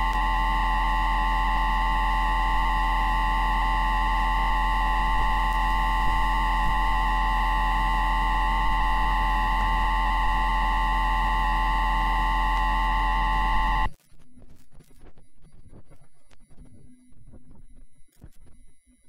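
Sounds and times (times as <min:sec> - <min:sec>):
electronic inverter whine: 0:00.0 - 0:14.4
faint crackle: 0:00.0 - 0:18.7.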